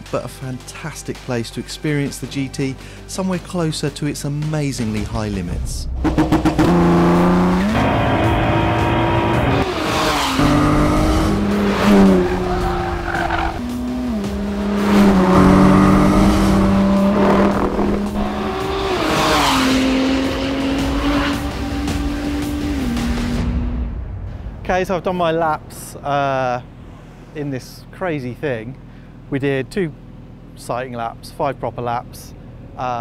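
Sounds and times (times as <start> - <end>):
car engine revving and shifting gears: 6.0 - 23.5.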